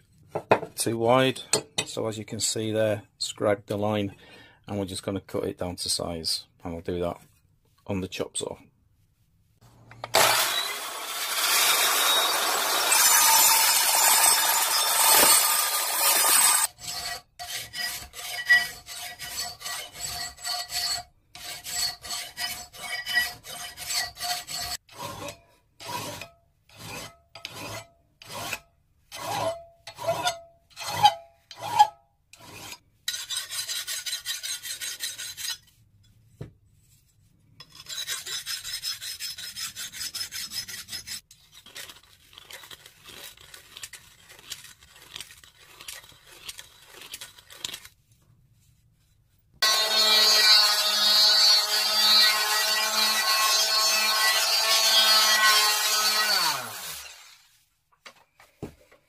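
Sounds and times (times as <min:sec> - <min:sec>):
chop saw cutting steel: 0:10.0 - 0:35.6, 0:49.6 - 0:57.5
hand file rasping on steel: 0:11.2 - 0:35.8, 0:37.6 - 0:47.9, 0:49.6 - 0:57.4.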